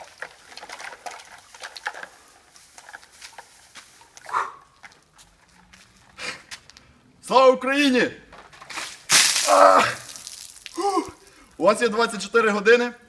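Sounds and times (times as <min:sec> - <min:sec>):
ice cubes clicking and rattling: 0:00.0 - 0:04.2.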